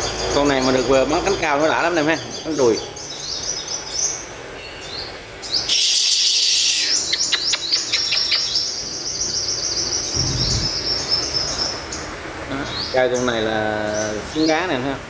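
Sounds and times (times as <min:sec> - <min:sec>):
sunbird singing: 0:00.0 - 0:15.0.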